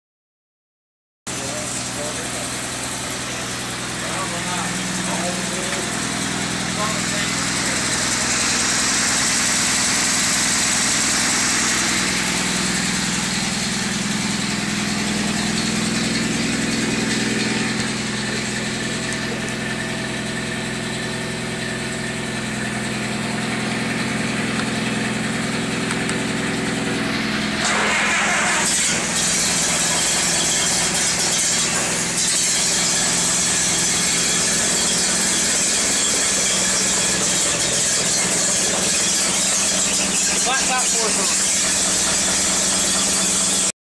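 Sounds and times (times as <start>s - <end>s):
car engine idling: 1.4s - 27.6s.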